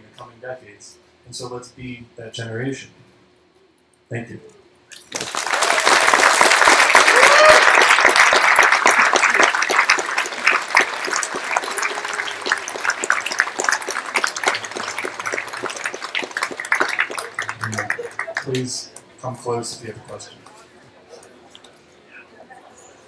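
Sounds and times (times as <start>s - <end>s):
audience applauding: 5.0s - 19.0s.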